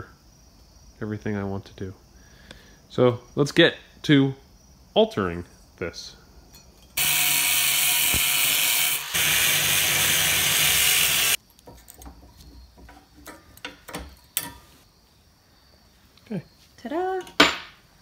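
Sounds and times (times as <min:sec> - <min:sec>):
angle grinder cutting steel: 0:07.0 - 0:11.4.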